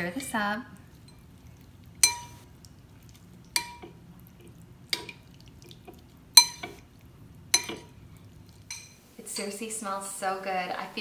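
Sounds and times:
spoon clinking in ceramic bowl: 2.0s - 2.4s, 6.4s - 6.8s, 7.6s - 7.9s, 8.7s - 9.0s.

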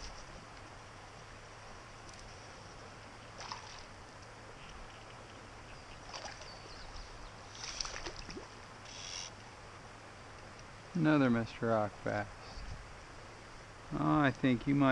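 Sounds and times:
flowing water hiss: 0.0s - 14.9s
fish splashing at surface: 7.6s - 8.5s.

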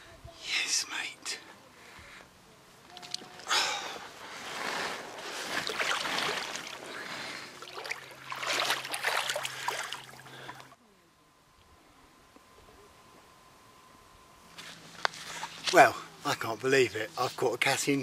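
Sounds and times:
water sloshing and splashing: 4.7s - 10.7s.

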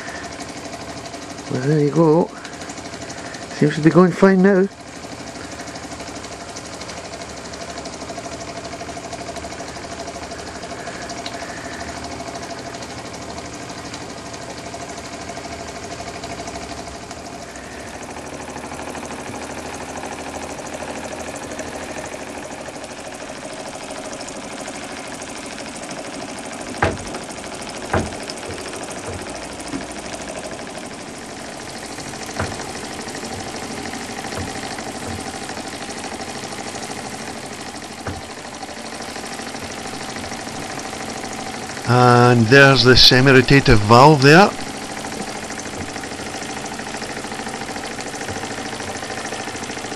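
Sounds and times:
toy steam engine running: 0.0s - 49.9s
sharp knocks: 26.8s - 30.0s, 32.0s - 35.7s, 38.0s - 38.4s.

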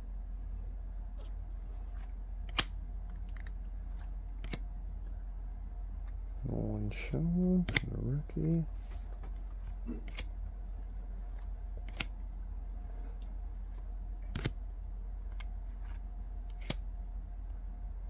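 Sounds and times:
low hum: 0.0s - 18.0s
cards being flicked snapping: 1.9s - 3.6s, 4.3s - 4.7s, 7.6s - 7.9s, 10.0s - 10.3s, 11.3s - 12.2s, 14.3s - 14.6s, 15.3s - 16.8s.

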